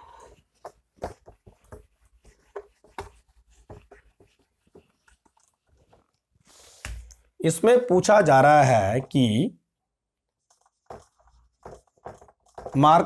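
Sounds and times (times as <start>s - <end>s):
duster rubbing on whiteboard: 0.1s - 6.8s, 10.4s - 13.0s.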